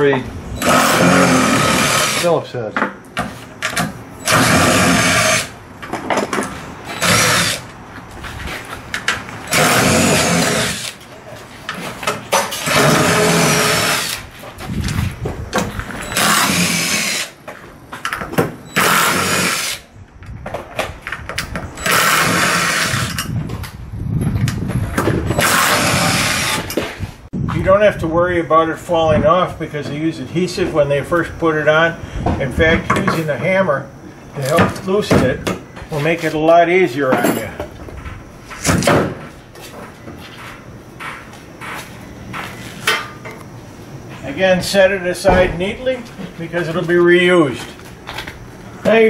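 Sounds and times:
power driver spinning screws out: 0:06.9 - 0:07.7, 0:09.5 - 0:11.0, 0:25.3 - 0:26.8.

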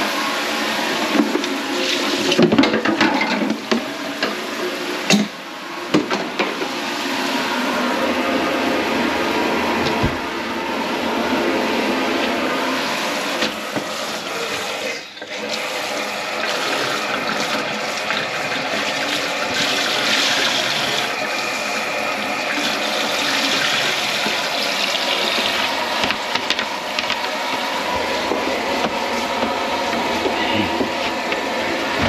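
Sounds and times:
tap water running into sink: 0:13.4 - 0:31.5.

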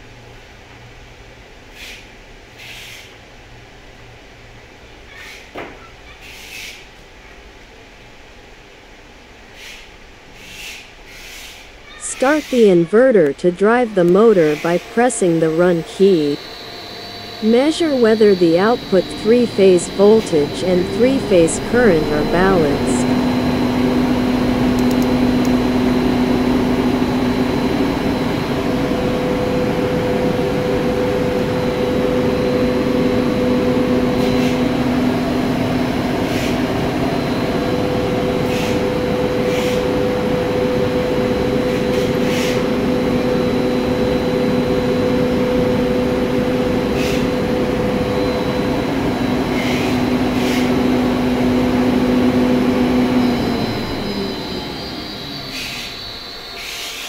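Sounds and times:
high whine: 0:12.0 - 0:57.0
electric motor hum: 0:14.3 - 0:56.8.

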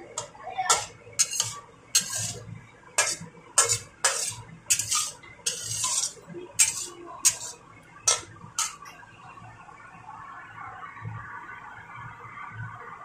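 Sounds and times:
metal spatula scraping wok: 0:00.2 - 0:08.9.

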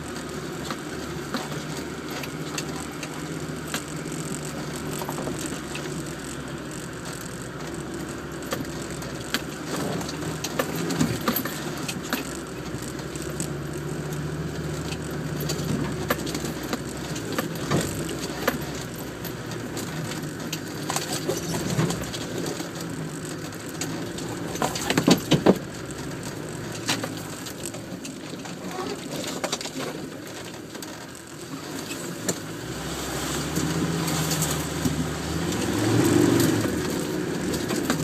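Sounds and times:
engine running at low revs: 0:00.0 - 0:38.0
vehicle pushing into bushes: 0:31.4 - 0:38.0.

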